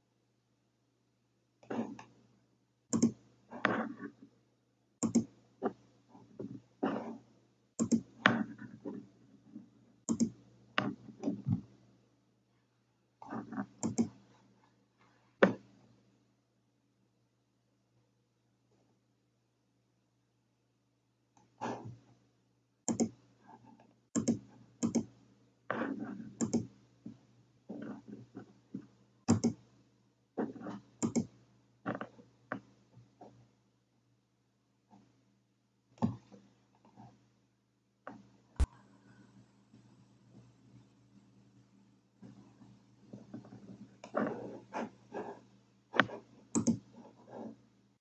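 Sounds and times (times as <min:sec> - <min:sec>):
computer mouse clicks: 0:02.9 - 0:03.9, 0:05.0 - 0:05.8, 0:07.8 - 0:08.9, 0:10.1 - 0:11.6, 0:13.2 - 0:14.2, 0:22.9 - 0:23.2, 0:24.2 - 0:25.2, 0:26.2 - 0:26.8, 0:29.3 - 0:29.6, 0:30.7 - 0:31.4, 0:46.0 - 0:47.0.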